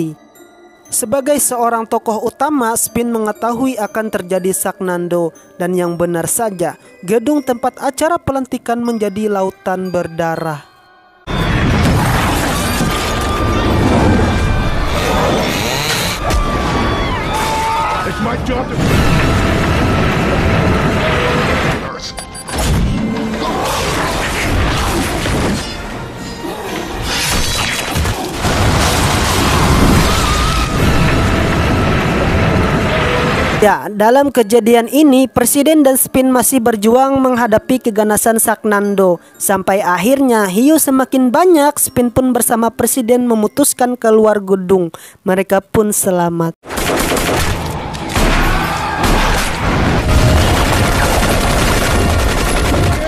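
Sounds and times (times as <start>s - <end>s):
action film music: 0.0s - 43.0s, 46.7s - 53.0s
dramatic music: 9.9s - 34.1s
crashing and smashing effects: 11.4s - 15.2s, 18.3s - 25.9s, 27.0s - 33.6s, 47.3s - 53.0s
rapid rifle gunfire: 46.6s - 53.0s.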